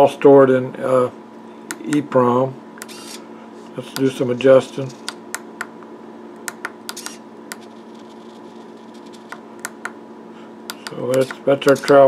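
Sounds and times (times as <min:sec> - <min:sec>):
faint steady hum: 0:00.0 - 0:12.0
push buttons clicking: 0:10.7 - 0:12.0.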